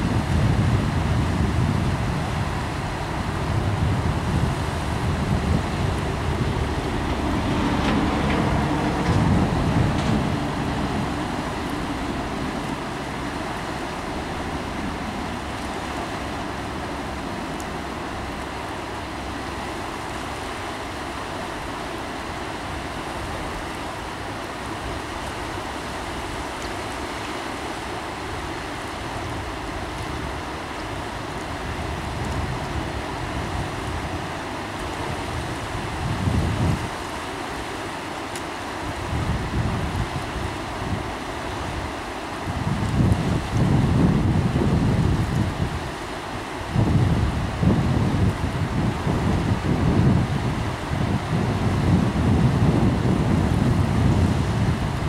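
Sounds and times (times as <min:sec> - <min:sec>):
turbulent water rushing: 0:00.0 - 0:55.0
low rumble: 0:03.5 - 0:18.7.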